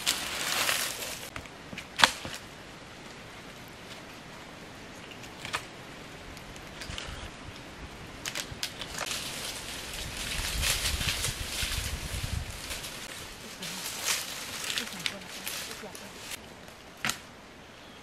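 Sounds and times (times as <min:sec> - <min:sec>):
light clicks and rustles in leaves: 0:00.0 - 0:17.3
sharp snap of sticks: 0:17.0 - 0:17.3.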